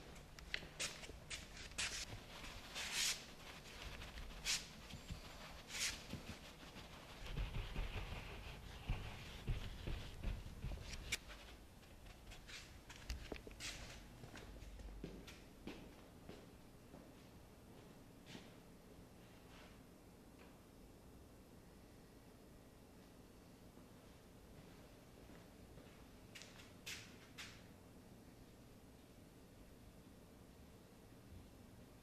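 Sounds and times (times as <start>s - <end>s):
cloth rag rubbing on canvas: 0.1s - 13.0s.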